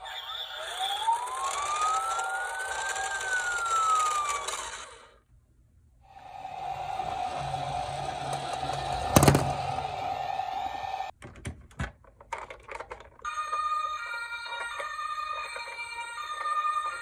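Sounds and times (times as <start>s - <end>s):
plastic toy cars clicking: 0.7s - 5.2s, 7.6s - 9.8s, 11.2s - 13.3s
steady electronic tone: 6.1s - 11.1s
loud knock: 8.1s - 10.0s.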